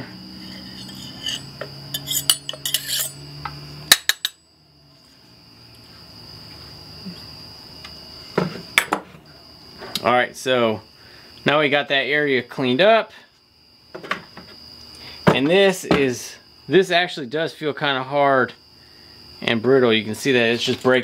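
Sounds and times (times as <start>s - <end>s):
high-pitched whine: 0.0s - 5.2s
metal tool scraping and clicking: 0.4s - 3.2s.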